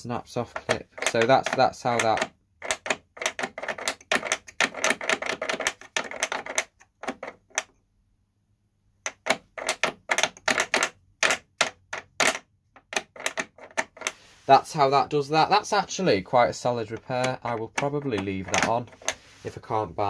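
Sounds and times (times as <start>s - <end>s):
metal bracket clicking on plastic: 0.5s - 7.7s, 9.1s - 14.2s, 16.8s - 19.2s.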